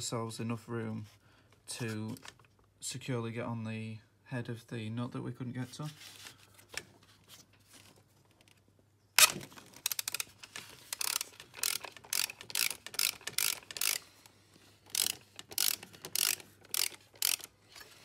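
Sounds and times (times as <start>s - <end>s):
socket ratchet clicking: 10.9s - 14.1s, 14.9s - 17.6s.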